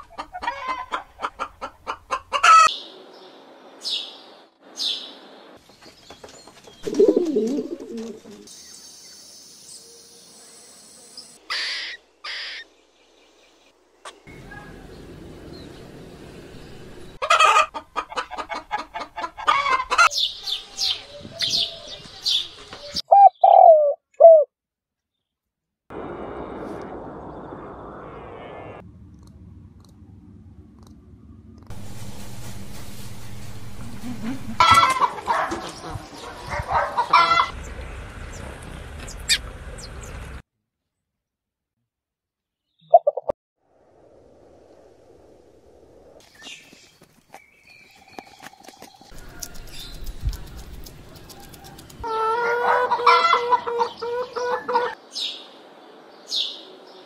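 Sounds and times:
hen-like clucking calls: 0.0s - 2.7s, 17.2s - 21.7s, 33.8s - 37.6s, 49.1s - 55.0s
dove cooing: 6.8s - 8.5s, 23.1s - 24.5s
harsh bird calls: 11.5s - 12.7s
sparrow chirps: 20.1s - 23.8s, 46.3s - 51.4s
low hum: 25.9s - 34.6s.

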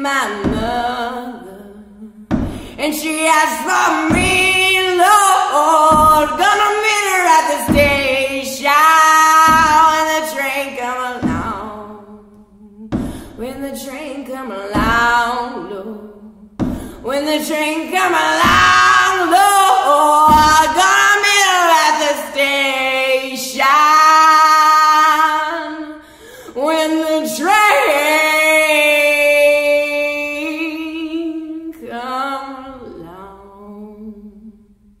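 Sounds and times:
woman singing wordless notes: 0.0s - 34.8s
foot drum thump: 0.4s - 0.9s, 2.3s - 2.8s, 4.1s - 4.7s, 5.9s - 6.6s, 7.6s - 8.3s, 9.4s - 10.0s, 11.2s - 11.8s, 12.9s - 13.6s, 14.8s - 15.2s, 16.6s - 17.1s, 18.4s - 19.1s, 20.3s - 20.8s.

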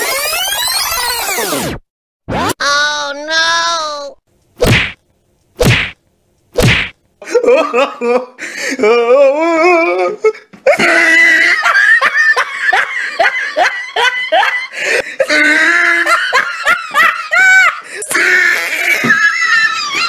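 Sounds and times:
person laughing hard: 10.7s - 20.0s.

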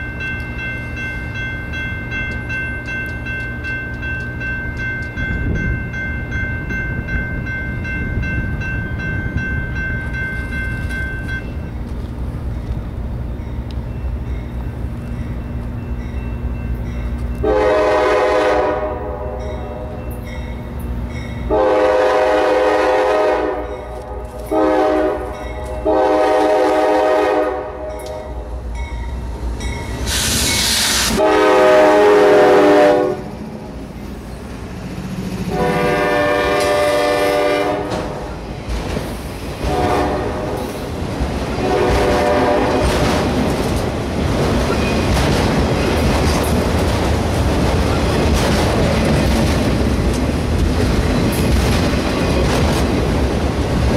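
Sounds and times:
locomotive air horn: 17.4s - 19.9s, 21.5s - 28.4s, 30.2s - 33.3s, 35.5s - 38.0s, 39.6s - 40.7s, 41.6s - 42.9s
train wheels clicking over rail joints: 37.8s - 53.9s.

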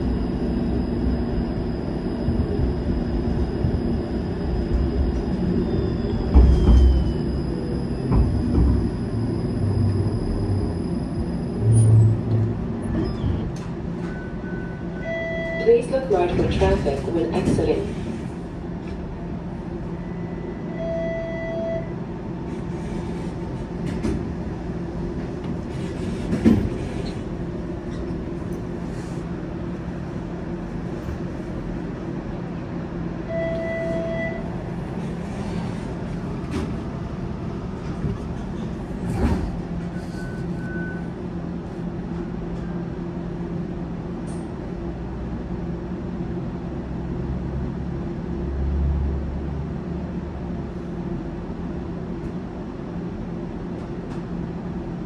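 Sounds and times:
electric hum of streetcar: 0.0s - 55.0s.

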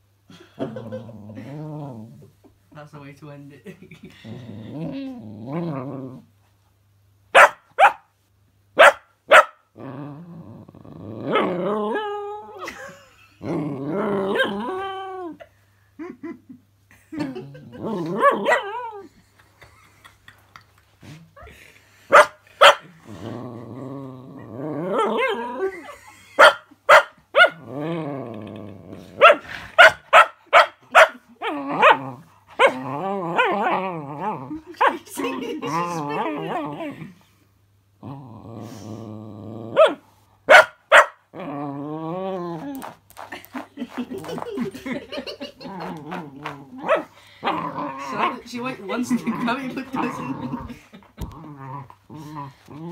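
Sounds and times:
puppy barking: 7.4s - 8.1s, 8.8s - 9.6s, 22.1s - 22.9s, 26.4s - 27.6s, 29.2s - 31.2s, 39.8s - 41.2s, 46.8s - 47.1s.

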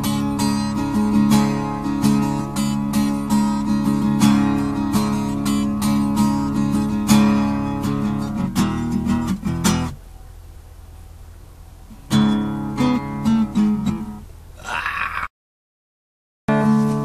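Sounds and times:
acoustic guitar strummed chords: 0.0s - 10.0s, 12.0s - 14.3s, 16.5s - 17.0s.

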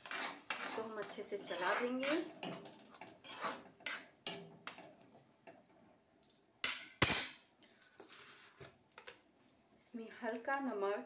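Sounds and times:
metal spoon scraping a pan: 0.0s - 4.8s.

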